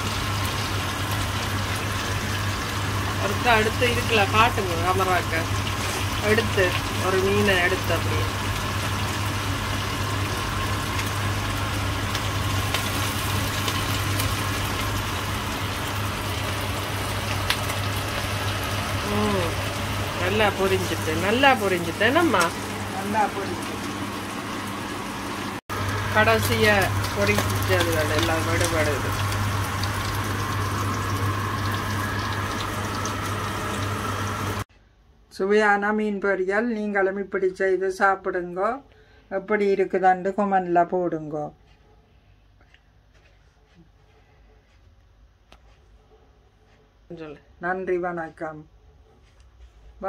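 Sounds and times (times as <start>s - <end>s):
fish sizzling in oil: 0.0s - 34.7s.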